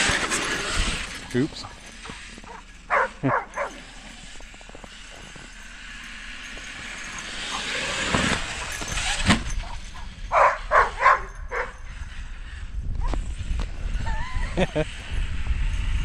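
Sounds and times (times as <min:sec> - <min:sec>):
rc truck motor and tyre hiss: 0:00.0 - 0:16.0
dog barking: 0:02.5 - 0:03.8, 0:09.6 - 0:11.8.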